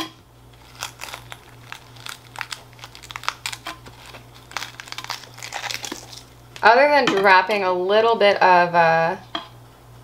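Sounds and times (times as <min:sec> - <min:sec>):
tongs crinkling through moss: 0:00.5 - 0:06.7.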